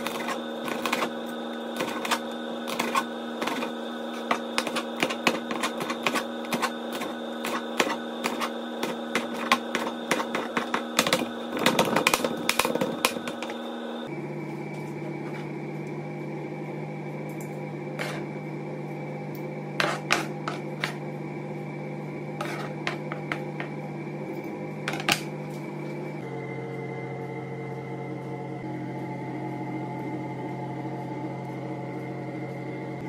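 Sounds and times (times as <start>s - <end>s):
knife chopping on plastic board: 0.0s - 1.1s, 1.8s - 13.5s.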